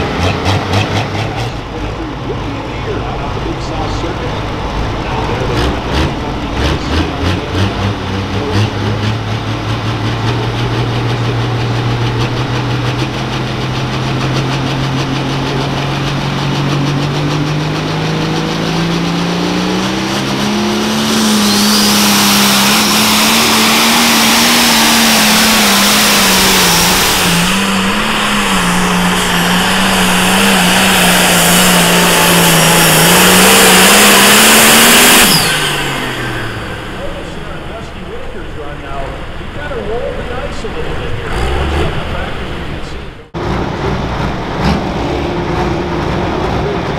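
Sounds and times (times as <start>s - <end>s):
diesel engine revving: 0.0s - 46.9s
loud rushing hiss: 20.6s - 39.0s.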